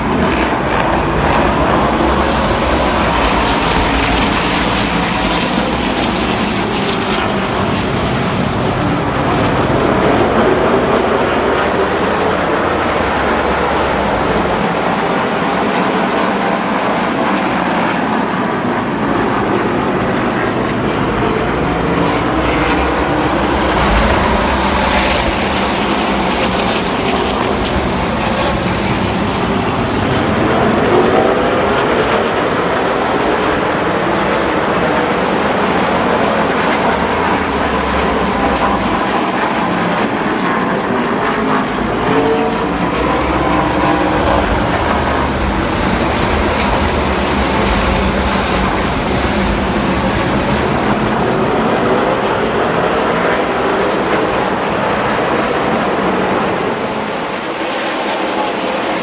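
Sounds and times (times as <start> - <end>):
race truck engines passing: 0.0 - 59.0.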